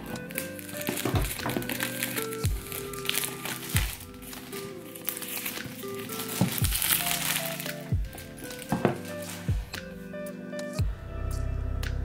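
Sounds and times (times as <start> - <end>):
fingernails scratching plastic wrap: 0.0 - 9.5
plastic film crinkling: 0.0 - 10.1
background music with slow drum beat: 0.0 - 12.0.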